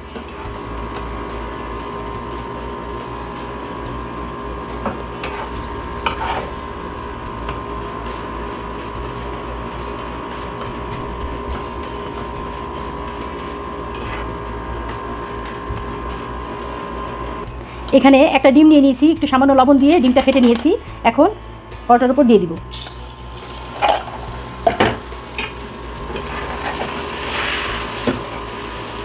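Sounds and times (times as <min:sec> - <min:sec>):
flatbread sizzling in pan: 0:00.0 - 0:17.6, 0:22.7 - 0:29.0
steady hum: 0:00.0 - 0:29.0
spatula scraping pan: 0:05.2 - 0:06.6, 0:11.5 - 0:14.5, 0:23.7 - 0:28.4.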